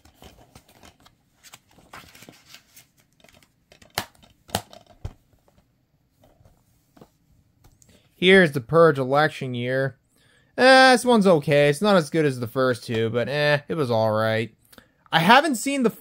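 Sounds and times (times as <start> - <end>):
paper rustling: 0.0 - 4.0.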